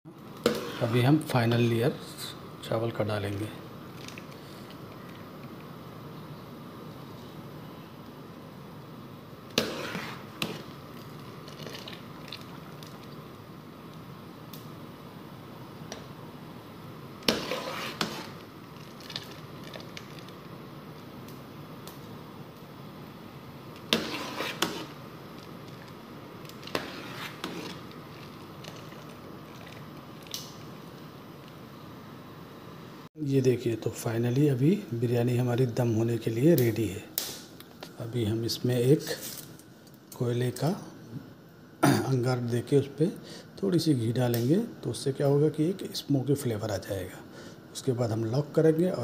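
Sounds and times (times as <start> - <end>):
water boiling in pot: 3.3 - 33.1.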